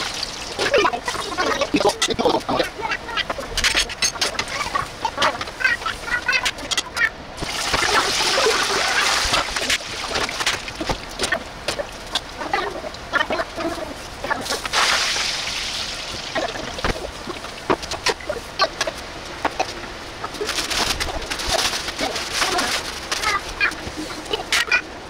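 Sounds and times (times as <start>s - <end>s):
hot oil deep-frying food: 0.0s - 1.2s, 7.4s - 11.2s, 14.6s - 18.0s.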